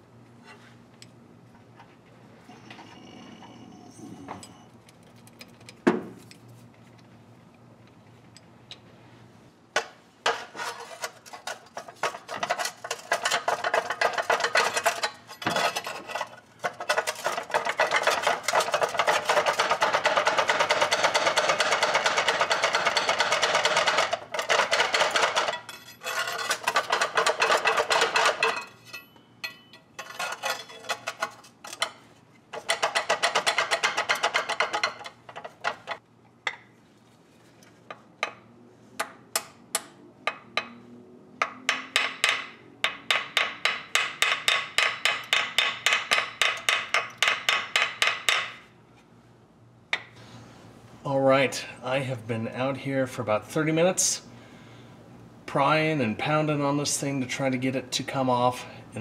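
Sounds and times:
hammer tapping on metal: 41.4 - 48.6.

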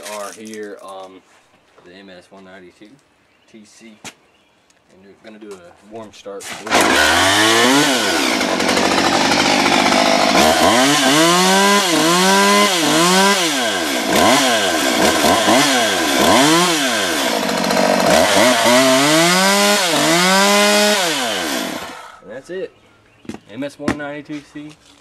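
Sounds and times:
chainsaw engine revving: 6.6 - 22.2.

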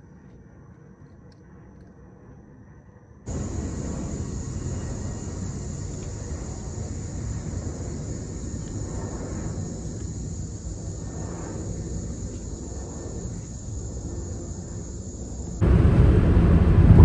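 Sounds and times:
distant jet engine rumble: 3.3 - 17.0.

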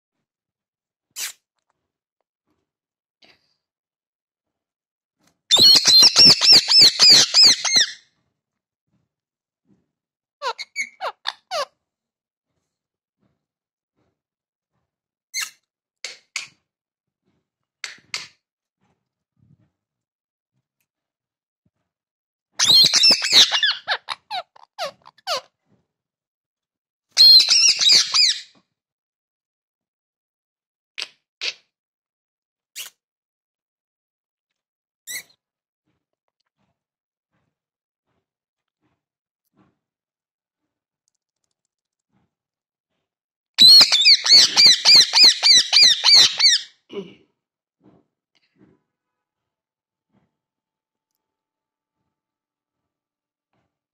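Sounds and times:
parakeet squawking: 5.5 - 8.0, 10.4 - 11.7, 22.6 - 25.5, 27.2 - 28.5, 43.6 - 46.7.

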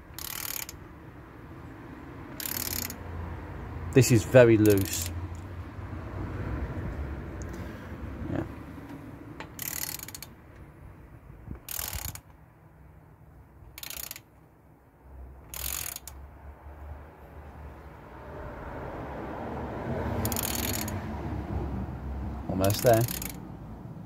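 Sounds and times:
ratchet clicking: 0.0 - 0.9, 2.3 - 3.0, 4.2 - 5.5, 9.4 - 10.4, 11.5 - 12.4, 13.7 - 14.4, 15.4 - 16.2, 20.2 - 21.0, 22.6 - 23.4.

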